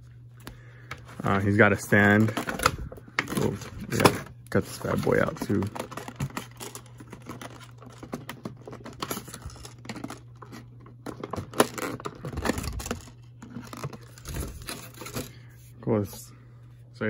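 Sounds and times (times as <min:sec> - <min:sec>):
steady low hum: 0:00.0 - 0:17.0
plastic packaging crinkling: 0:01.2 - 0:15.4.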